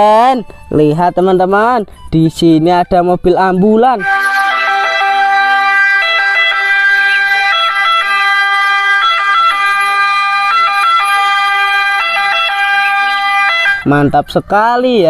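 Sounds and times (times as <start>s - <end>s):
ambulance siren two-tone: 4.0s - 14.0s.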